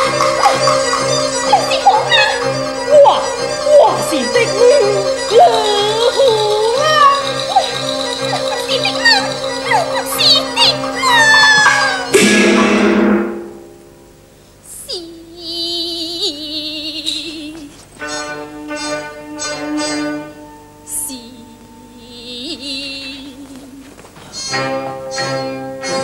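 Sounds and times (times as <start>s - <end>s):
opera band accompanying: 0.0s - 14.4s
woman singing opera: 3.0s - 7.8s, 8.4s - 12.1s, 14.7s - 17.8s, 20.9s - 24.1s.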